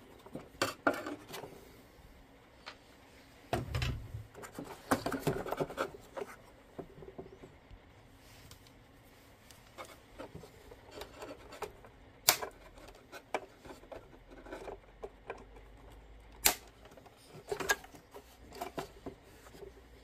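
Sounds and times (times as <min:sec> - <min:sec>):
handling clicks and rustles: 0:02.5 - 0:20.0
side cutters snipping wires: 0:16.3 - 0:16.8.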